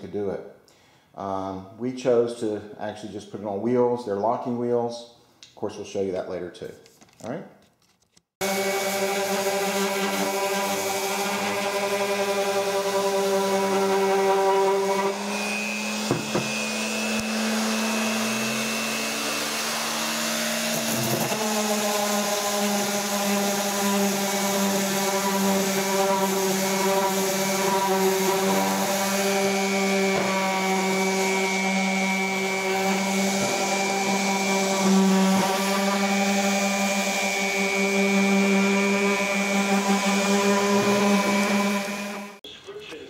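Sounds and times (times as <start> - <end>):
sander motor hum: 8.4 - 42.4
knock: 16.1 - 16.5.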